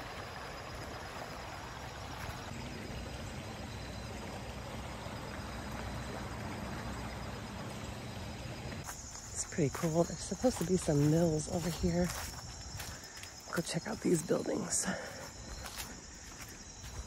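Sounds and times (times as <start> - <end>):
creek flowing over rocks: 0.0 - 12.9
faint high insect trill: 0.0 - 17.0.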